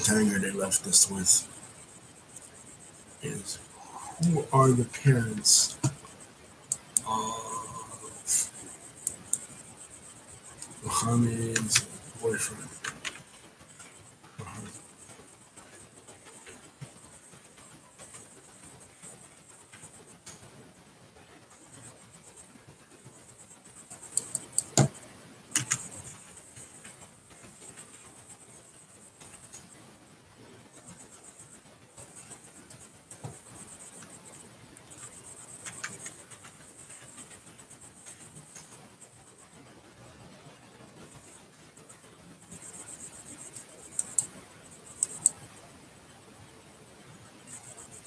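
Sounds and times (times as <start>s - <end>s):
faint room hiss: 0.0s - 48.0s
sharp clicks and taps: 4.2s - 7.2s, 10.6s - 14.7s, 24.0s - 27.0s, 43.2s - 45.4s
sharp clicks: 6.7s - 7.1s, 24.1s - 26.2s, 43.3s - 45.4s.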